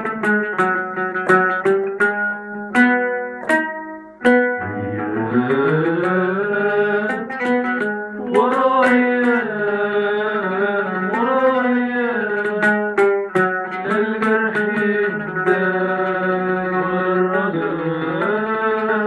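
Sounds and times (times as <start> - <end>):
oud plucked with a pick: 0.0 - 19.0
man singing: 4.6 - 19.0.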